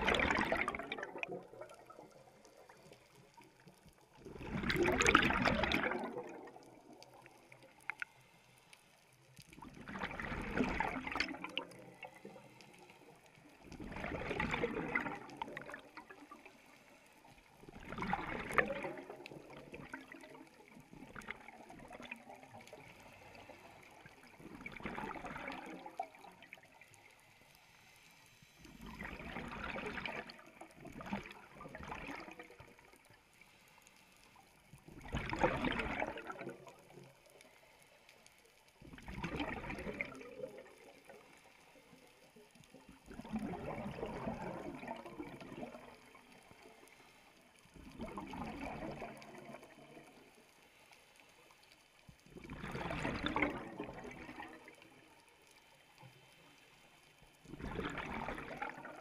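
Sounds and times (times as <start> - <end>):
underwater regulator exhaust bubbles: 0.0 - 3.6, 4.2 - 8.1, 9.6 - 16.6, 17.6 - 26.8, 28.7 - 33.2, 34.8 - 37.1, 38.8 - 41.3, 42.7 - 46.9, 47.8 - 50.4, 52.3 - 54.9, 57.5 - 59.0.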